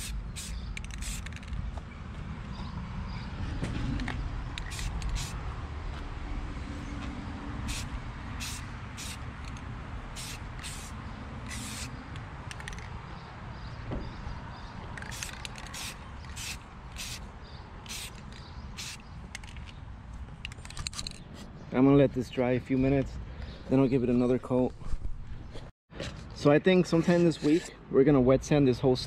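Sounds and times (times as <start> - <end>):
aerosol spray can hissing: 0.0 - 1.4, 4.6 - 5.4, 7.6 - 9.2, 10.1 - 12.0, 15.2 - 17.2, 17.9 - 18.2, 18.8 - 19.0.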